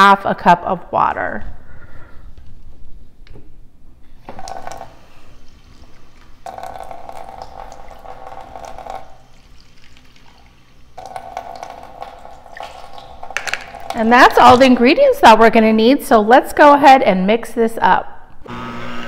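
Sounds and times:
water pouring: 4.3s - 14.8s.

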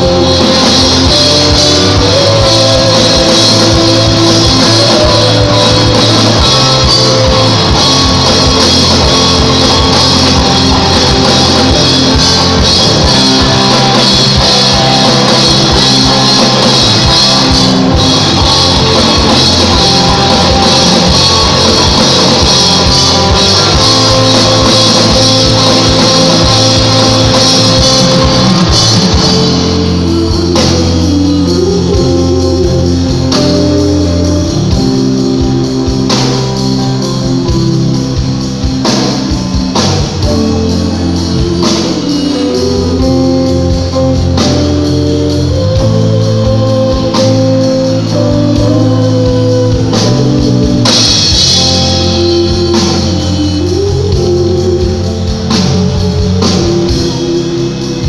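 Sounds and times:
drum kit: 0.0s - 58.0s
electric guitar: 0.0s - 58.0s
rock band playing: 0.0s - 58.0s.

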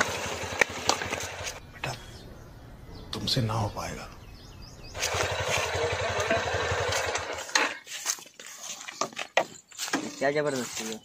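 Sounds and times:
motorcycle engine running: 0.0s - 1.6s, 4.8s - 7.7s.

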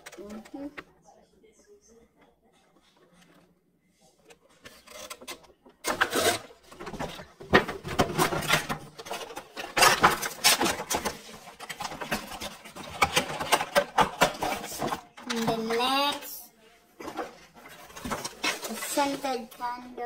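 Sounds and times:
cardboard scraping: 4.4s - 15.1s, 17.0s - 19.5s.

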